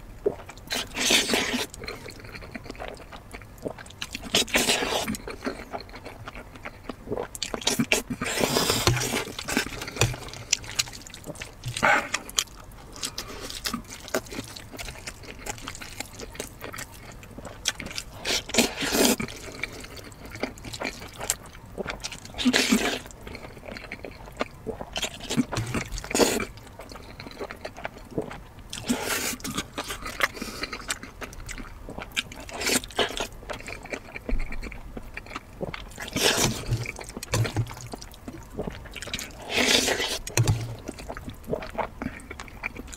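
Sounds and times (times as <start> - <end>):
chewing and mouth sounds: 0.0 - 42.9
person slurping noodles: 0.7 - 1.8, 4.2 - 5.2, 7.6 - 10.5, 28.8 - 30.9, 36.0 - 37.8, 38.6 - 41.6.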